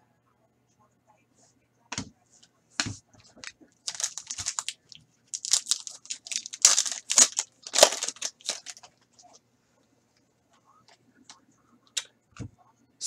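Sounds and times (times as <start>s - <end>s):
foil wrapper crinkling and tearing: 3.4s - 8.9s.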